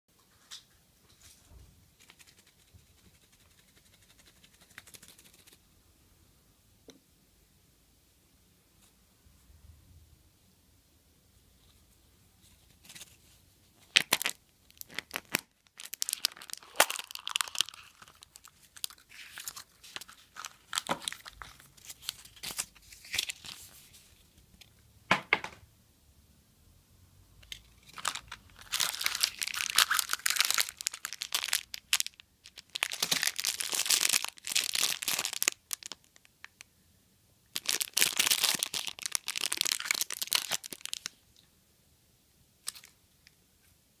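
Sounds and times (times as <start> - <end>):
plastic packaging crinkling: 13.8 - 24.1, 27.5 - 36.6, 37.5 - 41.2
foil wrapper tearing: 14.0 - 23.6, 27.8 - 36.0, 37.6 - 41.1.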